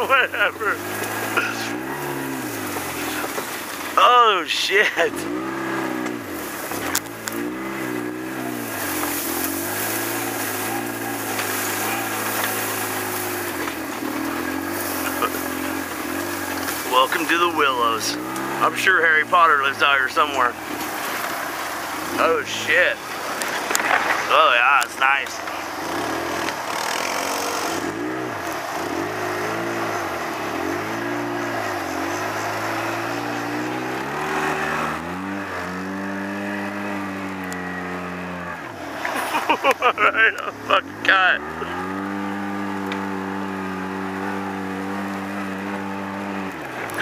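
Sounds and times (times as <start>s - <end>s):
grass and brush swishing: 0.0s - 4.0s, 5.4s - 37.4s
engine running steadily: 0.0s - 47.0s.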